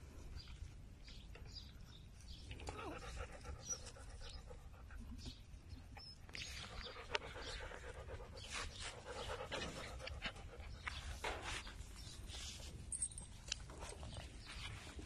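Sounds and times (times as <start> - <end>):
dog panting: 6.5 - 11.2.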